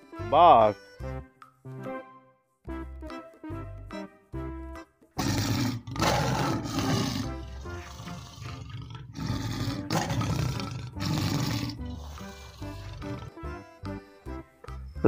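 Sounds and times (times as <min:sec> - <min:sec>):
background music: 0:00.0 - 0:15.0
lion roaring: 0:05.2 - 0:13.6.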